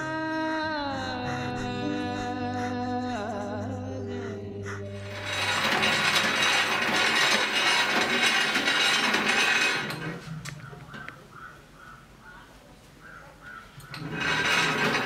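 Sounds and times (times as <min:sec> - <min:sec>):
treadle sewing machine clattering: 0:05.0 - 0:11.1, 0:13.8 - 0:15.0.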